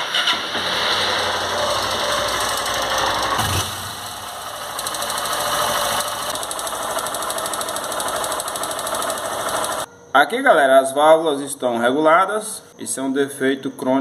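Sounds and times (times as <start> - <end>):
motorcycle engine idling with ticking: 2.2 - 9.9.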